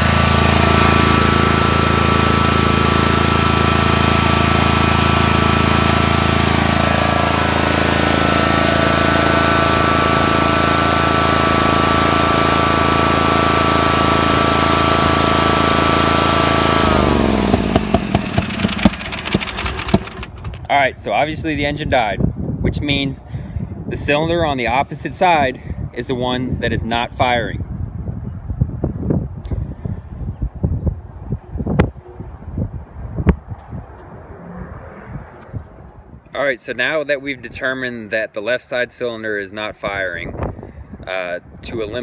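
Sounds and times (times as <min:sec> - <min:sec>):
mower engine running and stalling: 0:00.0 - 0:20.7.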